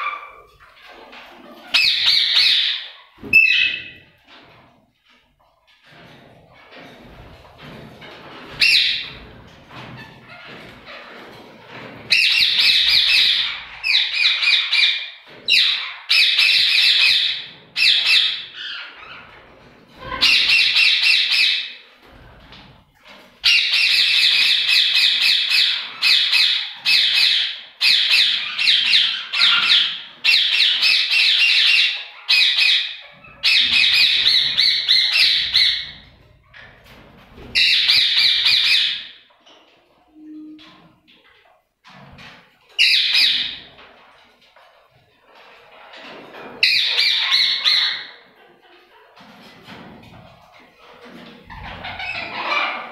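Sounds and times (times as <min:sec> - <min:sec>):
parakeets screeching: 0:01.6 - 0:04.0, 0:12.1 - 0:19.4, 0:20.0 - 0:21.6, 0:23.4 - 0:36.2, 0:36.8 - 0:39.1, 0:42.8 - 0:43.6, 0:46.6 - 0:48.1, 0:51.5 - 0:52.9.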